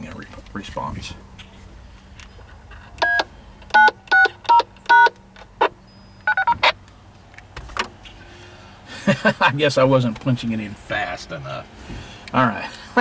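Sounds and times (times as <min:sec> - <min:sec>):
two-tone keypad beeps: 0:03.0 - 0:03.2, 0:03.8 - 0:05.2, 0:06.0 - 0:06.7
short beeps: 0:05.9 - 0:06.7.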